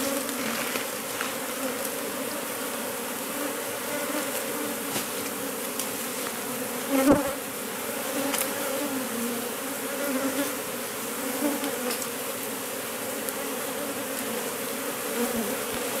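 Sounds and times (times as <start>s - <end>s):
honey bees buzzing: 0.0s - 16.0s.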